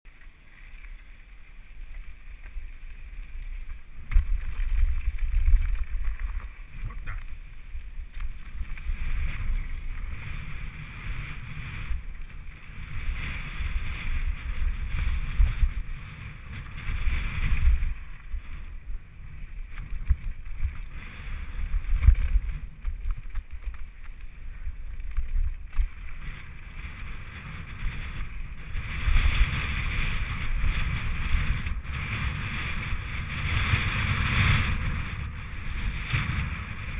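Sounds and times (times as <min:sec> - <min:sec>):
tyres on gravel trail: 0:00.0 - 0:36.9
wind buffeting microphone: 0:03.9 - 0:36.9.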